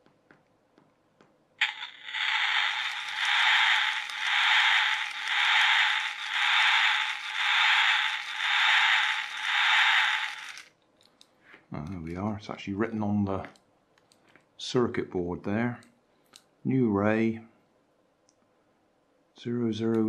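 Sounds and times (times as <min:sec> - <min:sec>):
toy sound chip hissing: 0:01.6 - 0:10.7.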